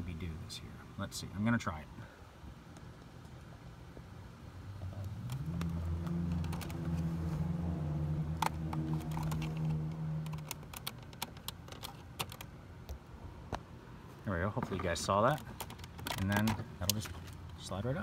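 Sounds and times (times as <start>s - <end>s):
low motor drone: 4.6s - 10.7s.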